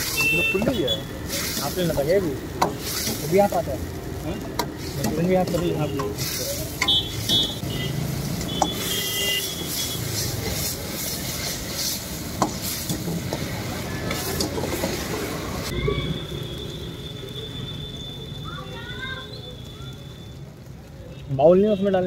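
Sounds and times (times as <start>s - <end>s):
gas burner running: 0.0s - 15.7s
gravy sizzling and bubbling: 0.0s - 22.0s.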